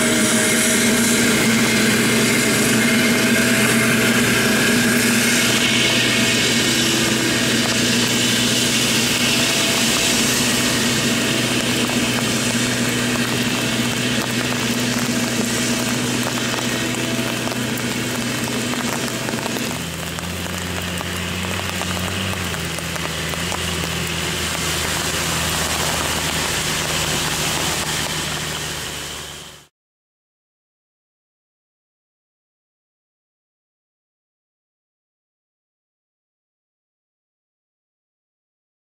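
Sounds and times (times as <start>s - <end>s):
forage harvester chopping: 0.0s - 29.1s
tractor engine drone: 0.0s - 29.7s.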